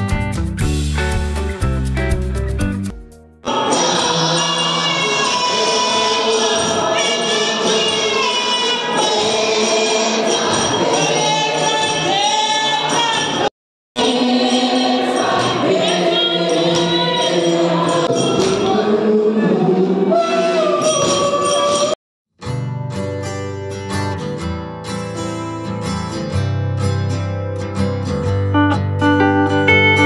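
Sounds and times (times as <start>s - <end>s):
congregation singing worship song: 3.4s - 22.0s
strummed acoustic guitar: 22.4s - 30.0s.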